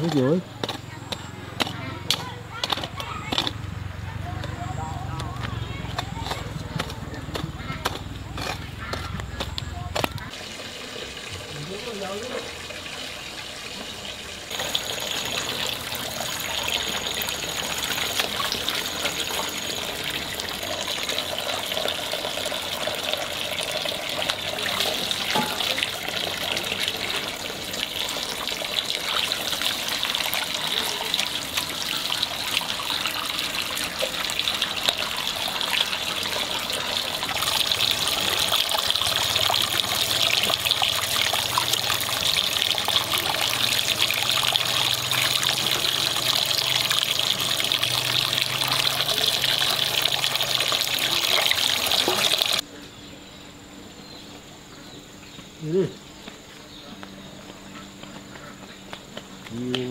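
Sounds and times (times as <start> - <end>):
water trickling: 10.2 - 52.6.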